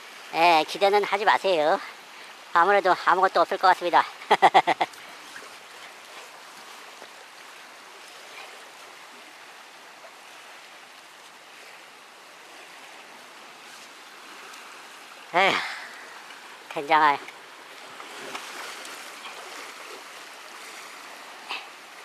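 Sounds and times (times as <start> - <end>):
water washing against rocks: 13.0 - 22.0.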